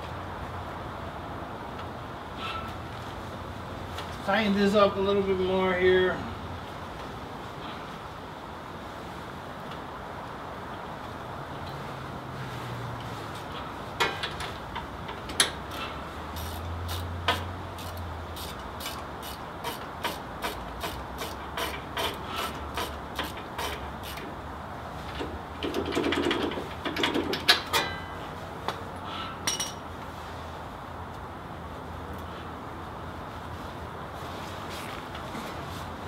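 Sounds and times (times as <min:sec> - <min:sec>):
ratchet wrench clicking: 0:15.4 - 0:24.2.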